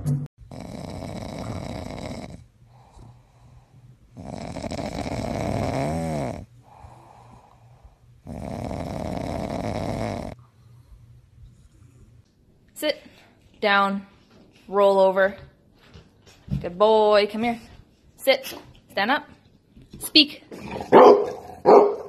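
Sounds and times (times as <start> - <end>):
dog snoring loudly: 0.4 - 7.6, 8.2 - 10.4
dog breathing: 0.5 - 12.2.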